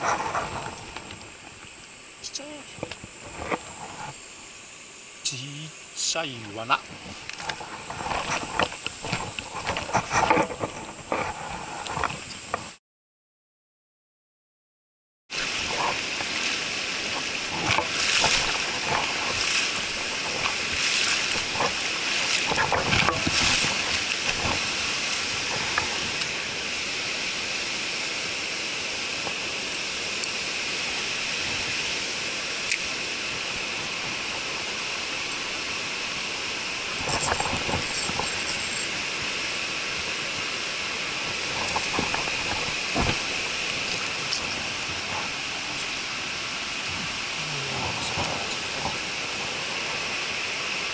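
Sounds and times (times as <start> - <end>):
stream rushing over rocks: 0.0 - 12.8, 15.3 - 50.9.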